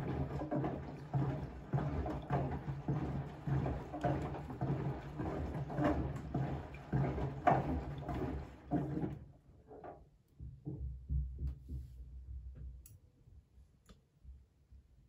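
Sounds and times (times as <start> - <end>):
washing machine motor hum: 0.0 - 9.4
water sloshing in washing machine drum: 0.0 - 9.9.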